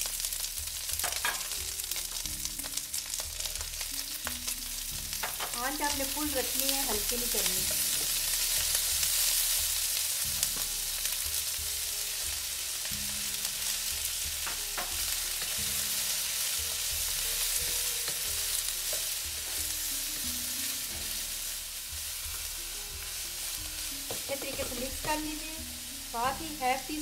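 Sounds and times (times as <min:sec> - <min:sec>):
vegetables sizzling in hot oil: 0:00.0 - 0:27.0
wooden spatula knocking on pan: 0:05.2 - 0:05.6, 0:14.4 - 0:15.0, 0:24.0 - 0:25.4.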